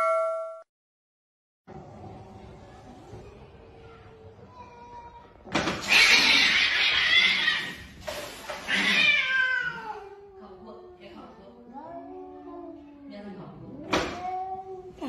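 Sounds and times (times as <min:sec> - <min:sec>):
kitten screeching: 0:05.8 - 0:07.9, 0:08.7 - 0:10.0.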